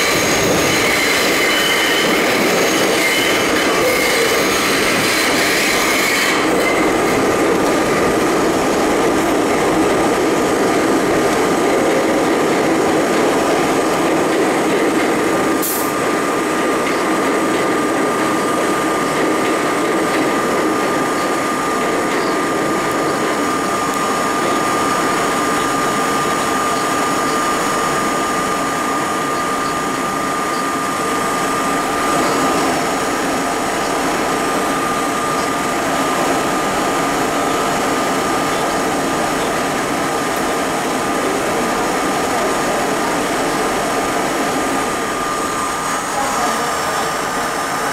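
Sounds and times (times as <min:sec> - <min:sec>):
harsh high squeal: 0:00.0 - 0:07.0
subway wheels rumbling on rail: 0:00.0 - 0:47.9.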